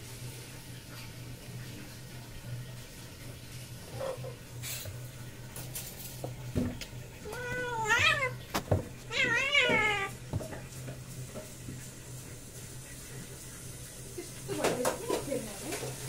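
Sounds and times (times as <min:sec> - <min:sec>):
cat meowing: 0:07.2 - 0:10.2.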